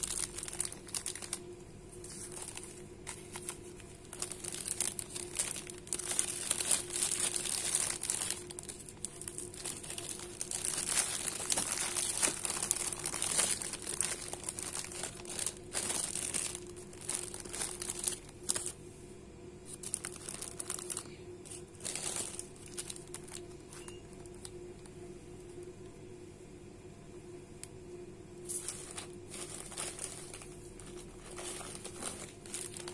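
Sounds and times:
plastic bags crinkling: 0.0 - 18.8, 19.7 - 24.5, 28.5 - 32.9.

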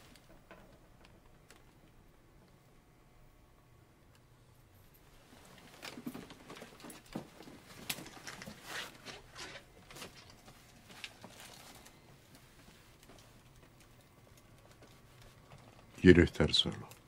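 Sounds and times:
rustling: 5.0 - 16.0.

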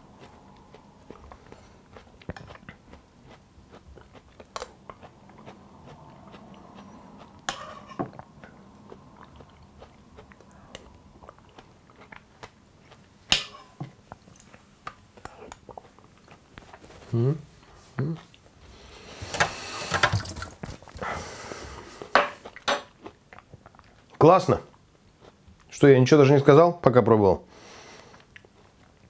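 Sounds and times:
quiet chewing and mouth sounds: 0.0 - 19.2, 20.6 - 25.8, 27.9 - 29.0.

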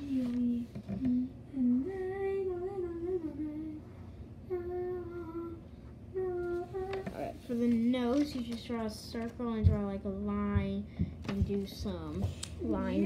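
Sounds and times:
child singing wordless tune: 4.5 - 13.0.

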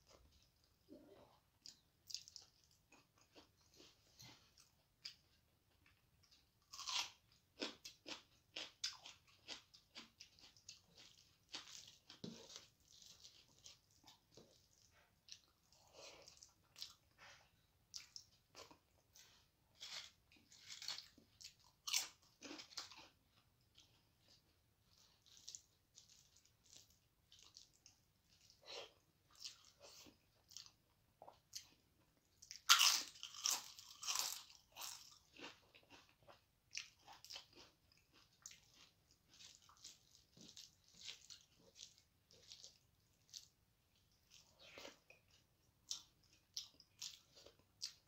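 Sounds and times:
chewing and wet mouth smacks: 1.6 - 5.4.

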